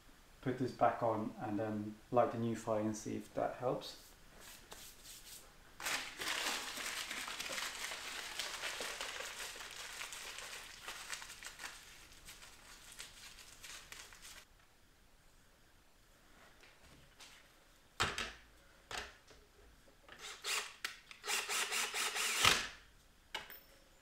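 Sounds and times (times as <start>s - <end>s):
paper crackling in wood stove: 5.8s - 14.5s.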